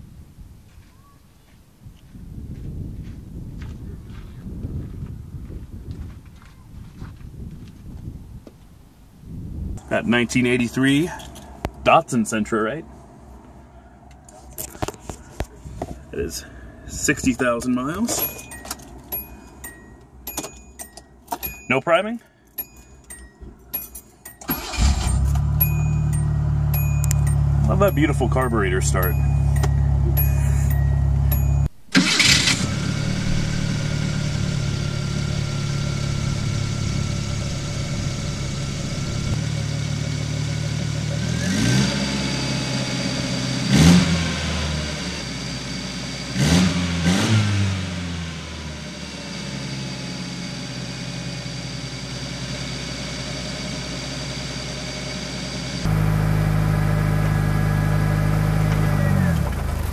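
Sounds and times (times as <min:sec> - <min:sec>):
car engine idling: 0:22.3 - 0:41.4, 0:47.8 - 0:59.9
car engine revving: 0:24.5 - 0:59.9.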